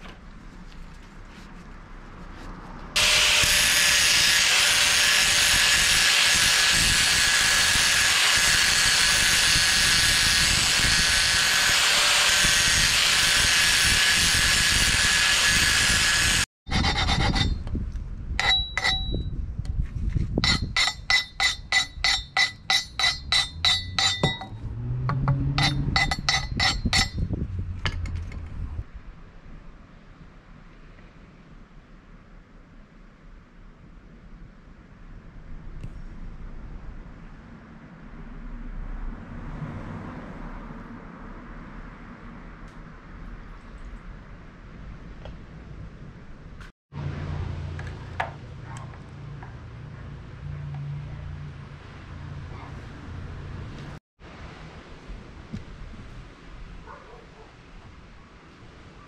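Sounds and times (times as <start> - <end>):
angle grinder whirring: 3.0 - 17.6
metal rod pounded in steel tube: 18.4 - 19.3, 20.4 - 28.2.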